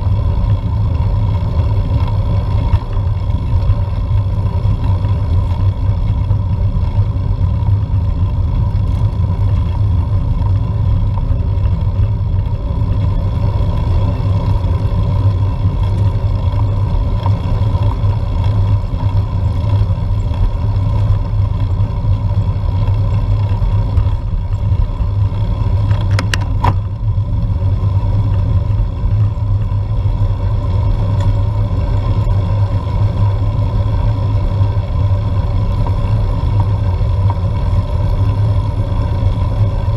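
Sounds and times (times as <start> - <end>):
bike rolling on tarmac: 0.0 - 39.9.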